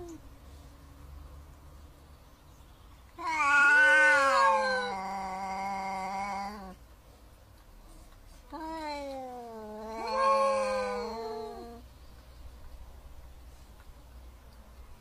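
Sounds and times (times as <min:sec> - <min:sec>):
cats yowling: 0:03.2 - 0:06.8, 0:08.5 - 0:11.8.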